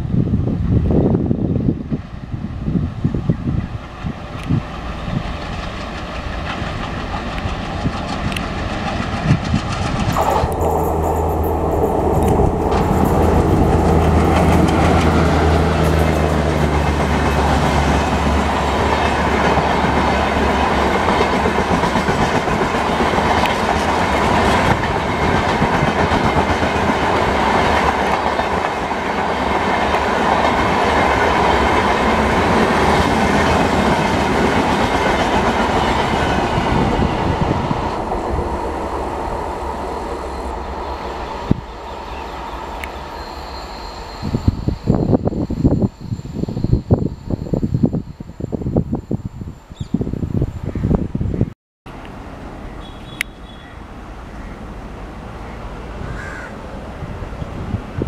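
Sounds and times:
train wheels clickety-clack: 3.9s - 37.4s
locomotive engine drone: 4.0s - 50.4s.

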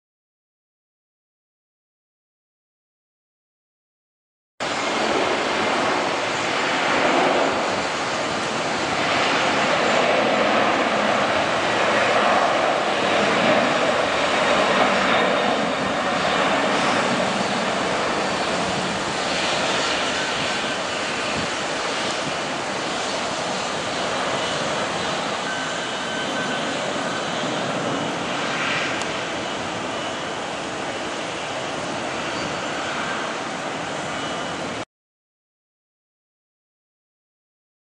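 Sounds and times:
jet engines at takeoff thrust: 4.6s - 34.9s.

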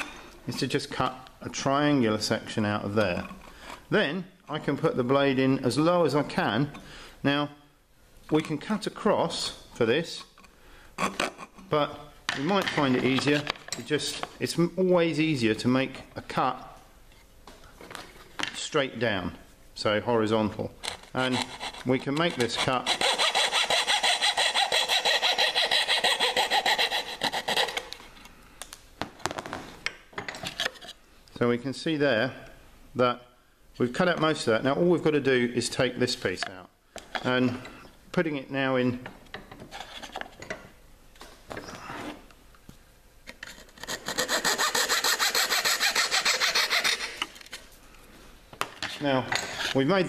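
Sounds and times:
coping saw cutting plywood: 22.4s - 27.8s.

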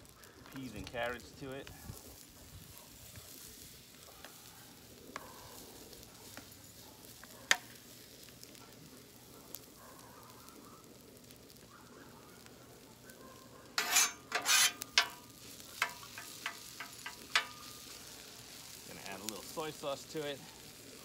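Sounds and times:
rice sizzling on griddle: 0.0s - 21.0s
metal spatula scraping griddle: 13.7s - 18.0s.

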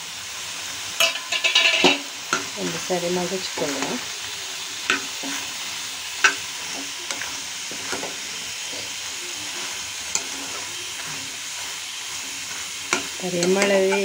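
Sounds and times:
vegetables sizzling in a pan: 0.0s - 14.0s
metal spatula scraping a pan: 1.0s - 4.1s, 6.2s - 14.0s.

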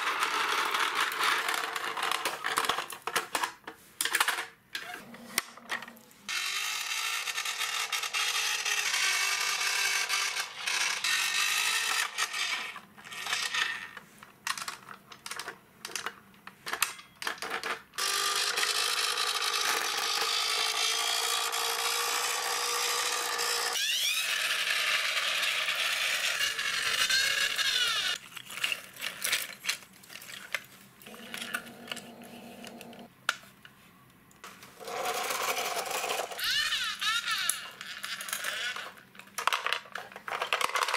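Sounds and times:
toys clicking and knocking: 0.0s - 33.5s, 34.4s - 40.9s
toy vehicles rolling on concrete: 6.3s - 16.2s, 17.3s - 33.1s, 34.8s - 40.9s.

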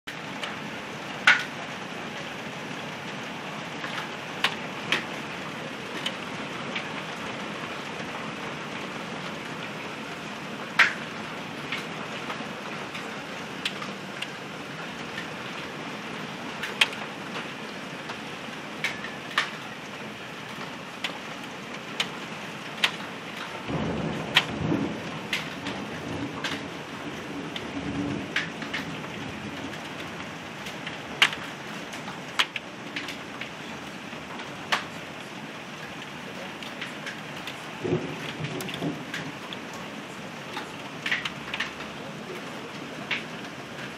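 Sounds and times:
heavy rain pouring: 0.1s - 43.9s
hailstones striking hard surfaces: 1.2s - 1.5s, 10.8s - 11.1s, 22.8s - 26.8s, 27.5s - 33.5s, 34.3s - 35.0s, 36.6s - 39.8s, 40.6s - 42.0s.

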